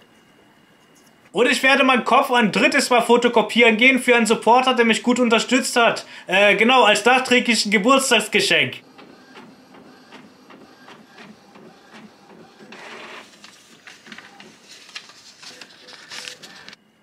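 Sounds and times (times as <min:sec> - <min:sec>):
printer whirring and clicking: 0:07.0 - 0:16.8
paper rustling: 0:09.0 - 0:16.8.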